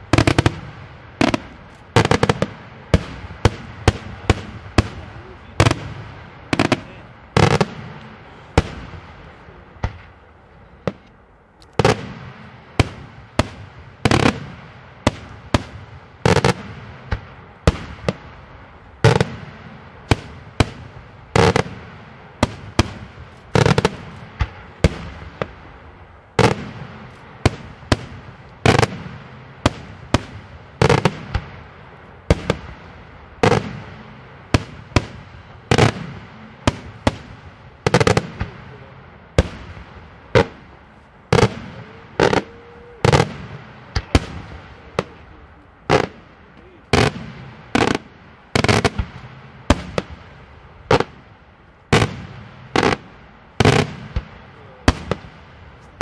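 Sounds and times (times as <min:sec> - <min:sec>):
fireworks bursting with bangs: 0:00.0 - 0:56.0.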